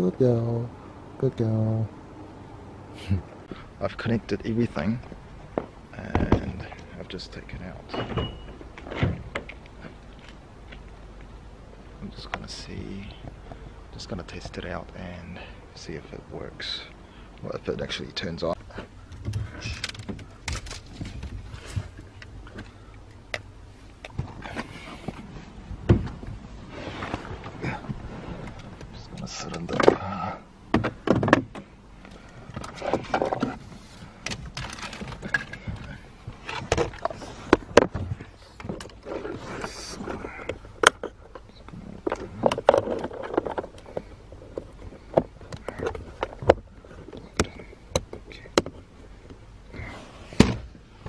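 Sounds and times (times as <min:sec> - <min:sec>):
low steady hum: 0:00.0 - 0:51.0
hands handling things in a car: 0:03.4 - 0:16.4, 0:17.3 - 0:51.0
rustling: 0:18.5 - 0:30.0.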